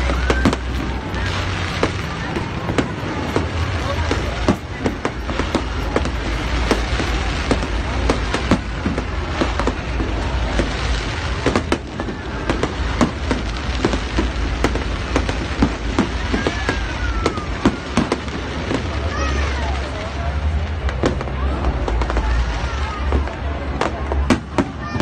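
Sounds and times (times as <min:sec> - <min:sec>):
firework falling whistle: 0:00.0 - 0:07.8
firework bangs and crackles: 0:00.0 - 0:25.0.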